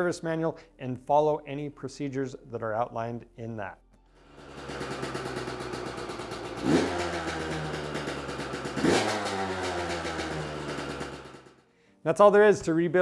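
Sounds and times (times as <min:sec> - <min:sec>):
two-stroke engine idling and revving: 0:04.2 - 0:11.6.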